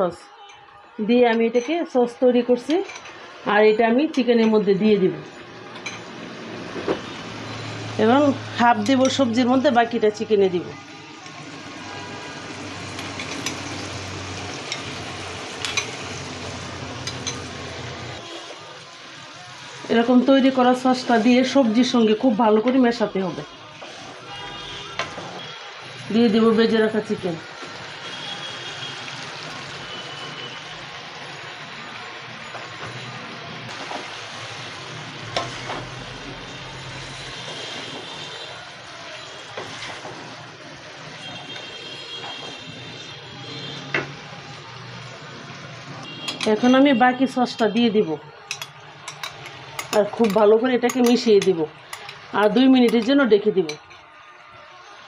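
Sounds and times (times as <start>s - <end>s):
vegetables sizzling in a wok: 2.2s - 55.0s
metal spoon clinking on glass bowl: 2.7s - 3.2s, 13.0s - 13.9s, 17.0s - 17.5s, 46.3s - 46.6s, 48.4s - 54.0s.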